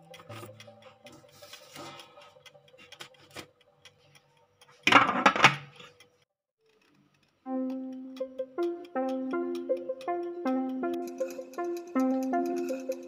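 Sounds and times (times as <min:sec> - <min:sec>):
plastic timer dial clicking: 0:00.0 - 0:07.4
faint clicks: 0:00.0 - 0:13.0.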